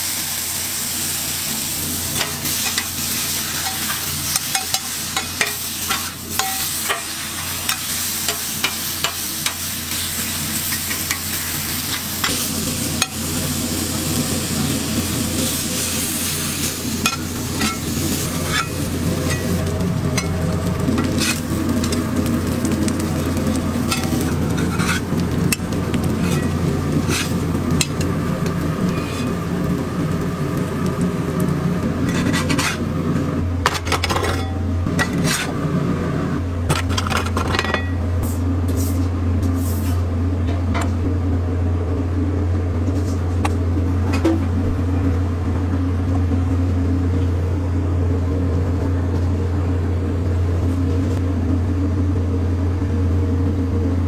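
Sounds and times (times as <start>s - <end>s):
patties sizzling: 0.0s - 40.1s
steady low hum: 0.0s - 54.0s
metal spatula scraping griddle: 2.1s - 13.2s, 17.0s - 19.6s, 20.2s - 22.0s, 23.9s - 27.4s, 28.8s - 29.4s, 32.0s - 32.9s, 33.6s - 35.6s.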